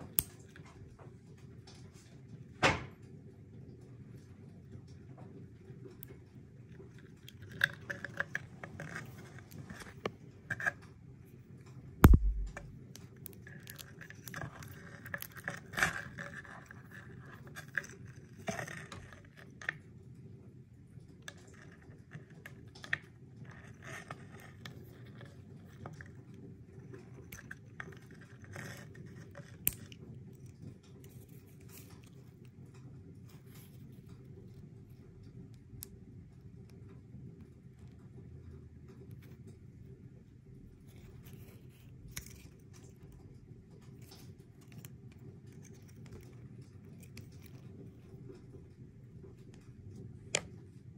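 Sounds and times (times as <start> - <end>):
loud thump: 12.0 - 12.7.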